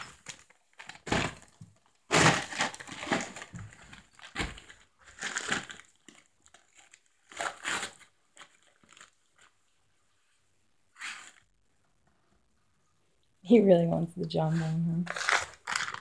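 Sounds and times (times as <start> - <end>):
dog tearing wrapping paper: 2.1 - 9.2, 15.1 - 16.0.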